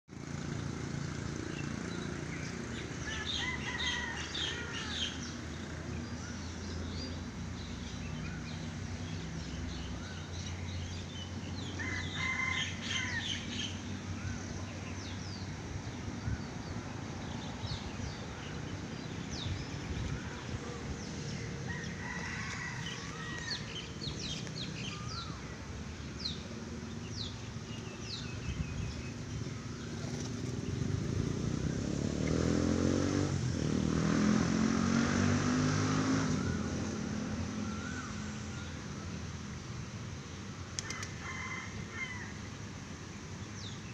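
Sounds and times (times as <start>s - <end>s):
birds calling: 1.5s - 33.3s.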